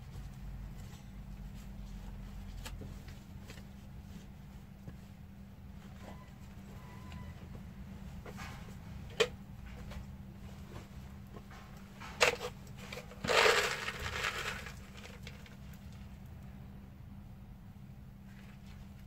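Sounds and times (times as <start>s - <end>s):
fertilizer pellets rustling and rattling: 12.0s - 15.9s.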